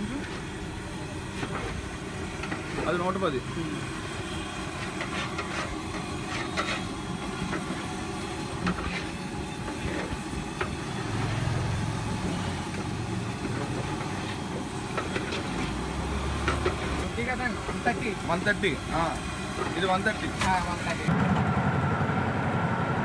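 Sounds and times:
chicken deep-frying in oil: 0.2 - 21.1
oil popping and crackling: 11.8 - 18.8.

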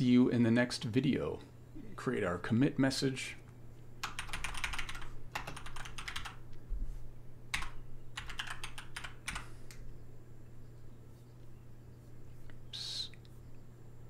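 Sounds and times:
typing on a computer keyboard: 4.0 - 6.4, 7.5 - 9.8.

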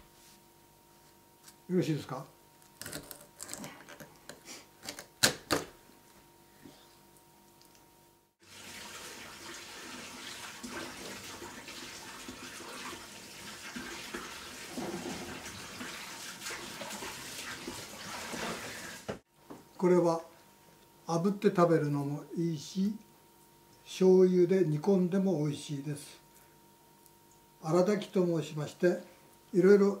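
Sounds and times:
kitchen tap running: 8.4 - 19.2.

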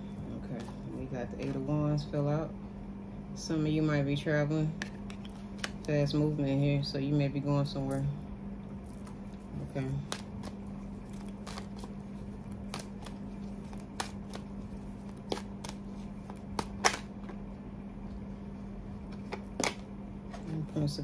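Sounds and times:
steady low hum: 0.0 - 21.0
cards being shuffled: 8.9 - 17.4
card clicks and snaps: 15.2 - 17.4.

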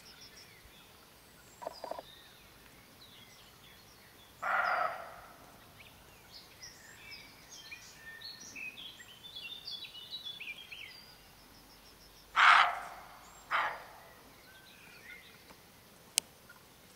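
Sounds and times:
songbird singing: 0.0 - 16.9
deer barking in alarm: 4.4 - 5.3, 12.4 - 14.0.

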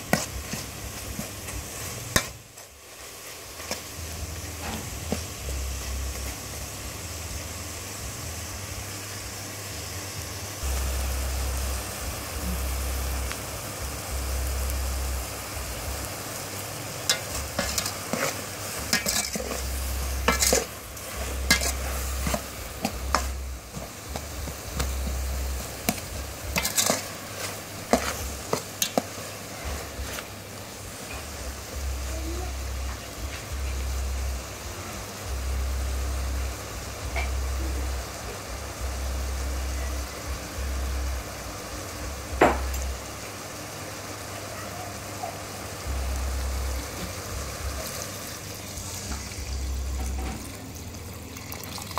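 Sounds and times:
meat sizzling in a pot: 0.0 - 51.9
low hum: 4.0 - 16.3
metal ladle scraping and clinking: 17.1 - 23.3, 25.9 - 29.1.

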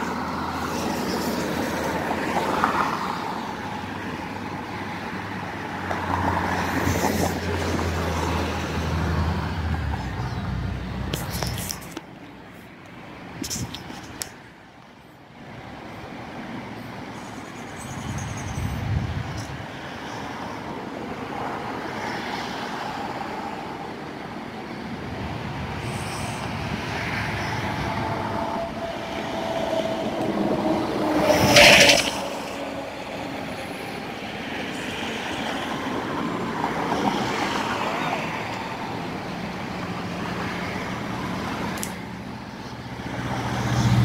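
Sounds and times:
road traffic: 0.0 - 44.0
vehicle passing close: 25.8 - 35.4, 39.0 - 44.0.

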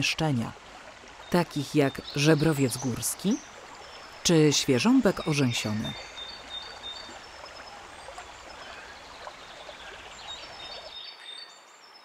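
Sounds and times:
stream flowing: 0.0 - 12.0
faint bird chirps: 5.0 - 12.0.

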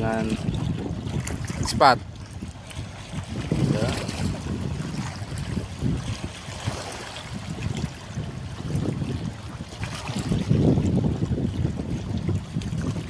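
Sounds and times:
water lapping and sloshing: 0.0 - 13.0
wind buffeting microphone: 0.0 - 13.0.

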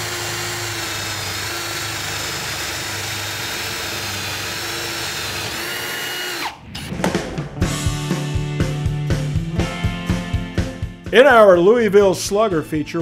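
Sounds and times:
cordless drill boring into wood: 0.0 - 6.6
drill motor winding down: 0.0 - 6.9.

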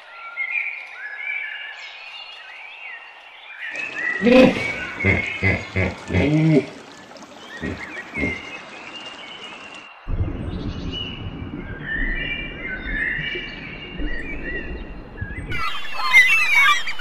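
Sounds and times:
birds calling: 0.4 - 10.0, 11.8 - 17.0
low thumps: 10.1 - 15.7.

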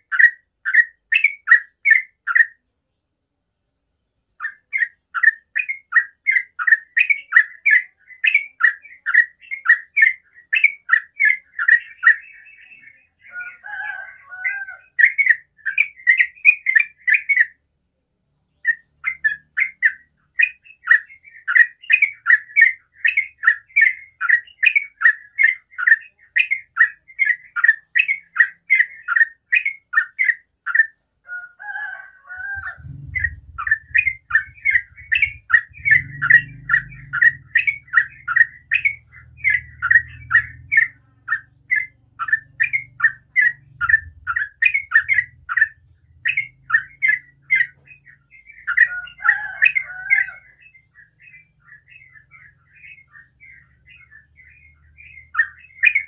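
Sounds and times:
bird chattering notes: 32.4 - 47.8
low rumble: 32.6 - 40.8, 43.7 - 46.7.

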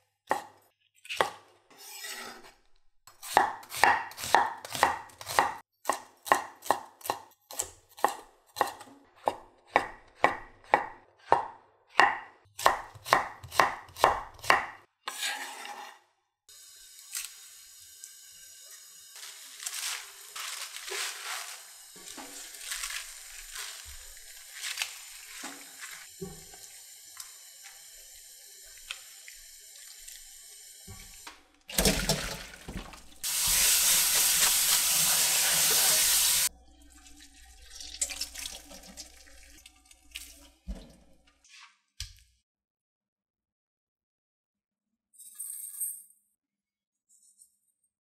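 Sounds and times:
tap running water: 20.4 - 27.8, 28.7 - 36.5, 37.7 - 41.2.

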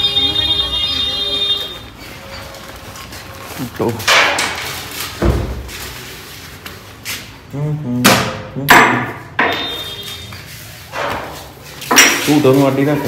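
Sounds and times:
metallic knocks and clanks: 4.0 - 5.6.

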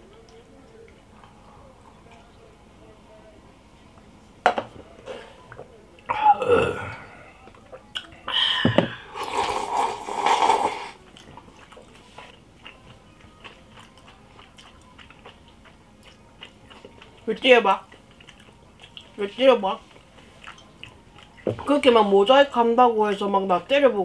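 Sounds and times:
quiet chewing with clicks: 0.0 - 3.0, 11.0 - 19.2, 19.8 - 21.4.

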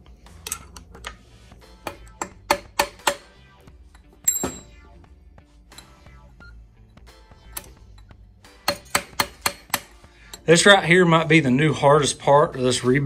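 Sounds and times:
background music: 0.0 - 13.0
metal ball bearing clinks: 1.8 - 4.8, 5.7 - 6.1, 6.8 - 10.6.

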